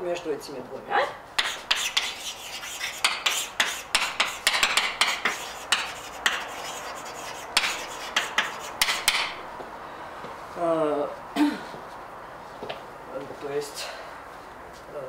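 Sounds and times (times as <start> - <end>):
chalk tapping and scratching on blackboard: 1.4 - 9.4.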